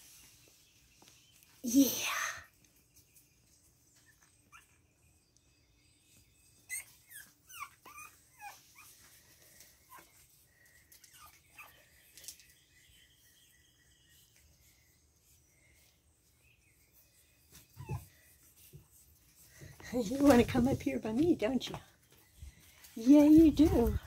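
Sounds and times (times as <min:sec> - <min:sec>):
puppies whimpering: 0:06.6 - 0:09.1.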